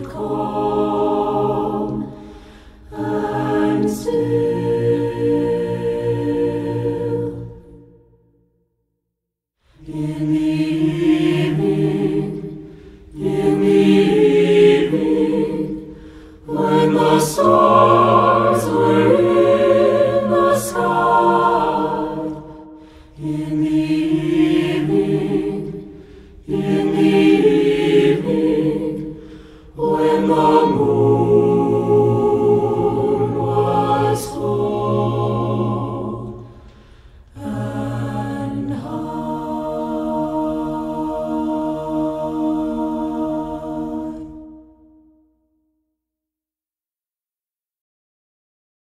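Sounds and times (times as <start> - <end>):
choir singing a cappella: 0.0 - 8.4, 9.7 - 45.3.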